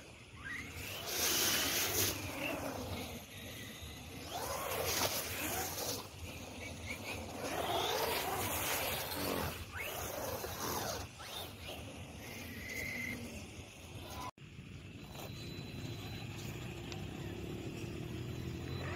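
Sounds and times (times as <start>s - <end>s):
electric motor whining: 0.0s - 14.3s.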